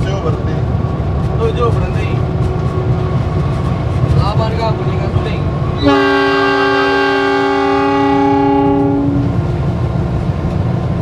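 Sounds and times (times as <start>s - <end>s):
train rumbling: 0.0s - 11.0s
locomotive horn blast: 5.8s - 9.4s.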